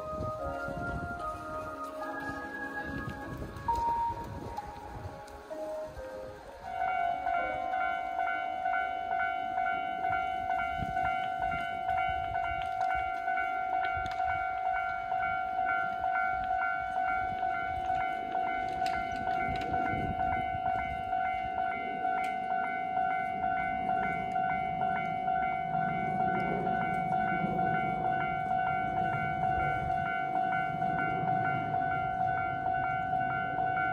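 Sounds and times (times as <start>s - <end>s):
level crossing warning bell: 0.0s - 33.9s.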